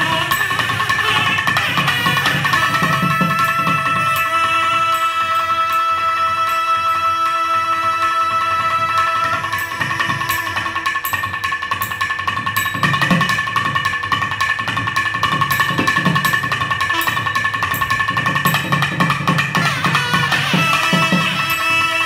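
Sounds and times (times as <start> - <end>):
drumming with stick strokes: 0.0 - 5.9, 6.6 - 22.0
double-reed wind instruments playing: 0.0 - 11.0, 19.5 - 22.0.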